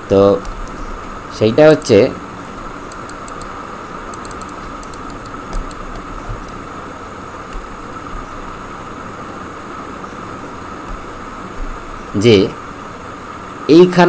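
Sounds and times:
background hiss: 0.0 - 14.0
faint whine: 0.0 - 14.0
faint clicks: 1.8 - 3.5, 4.1 - 6.6.

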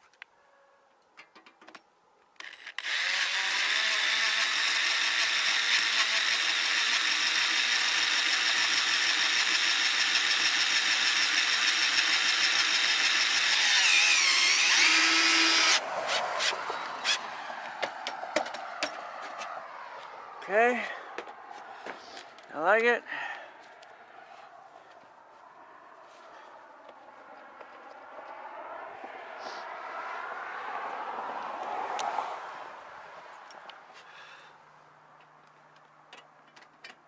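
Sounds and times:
cordless drill whining on metal: 2.4 - 17.2.

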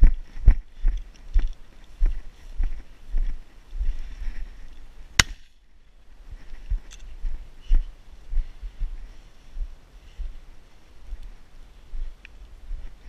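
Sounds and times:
footsteps crunching through dry grass: 0.0 - 13.0
shotgun shot: 5.2 - 5.5.

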